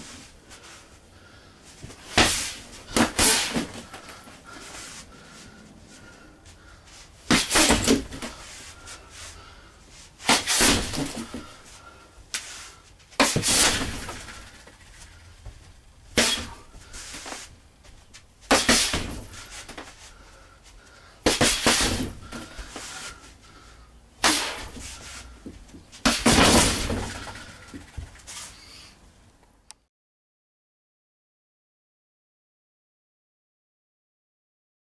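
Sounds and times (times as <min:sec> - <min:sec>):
fists striking punching bag: 0:02.1 - 0:03.9, 0:07.3 - 0:08.3, 0:18.5 - 0:19.4, 0:21.2 - 0:22.5, 0:24.2 - 0:24.8, 0:26.0 - 0:27.3.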